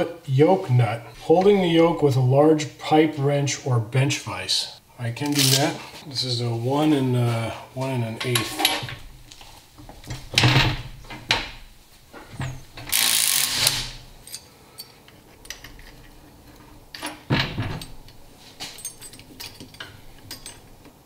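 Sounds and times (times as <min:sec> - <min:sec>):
metal tools clanking: 0:08.2 - 0:09.1, 0:14.2 - 0:21.0.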